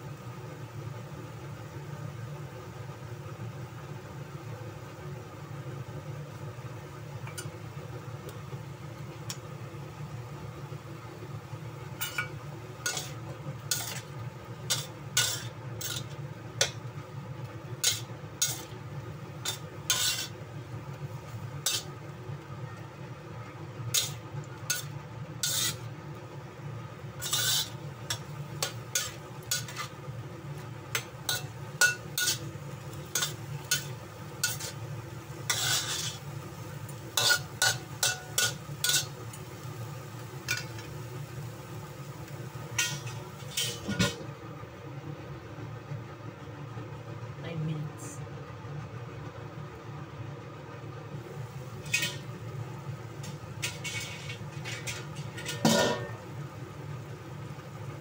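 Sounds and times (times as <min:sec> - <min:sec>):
light sizzle: 0:00.0 - 0:58.0
steady low hum: 0:04.6 - 0:58.0
utensil scraping and tapping wok: 0:07.2 - 0:07.6, 0:11.9 - 0:22.8, 0:23.8 - 0:26.0, 0:27.2 - 0:41.0, 0:42.6 - 0:44.3, 0:51.7 - 0:52.6, 0:53.2 - 0:56.4.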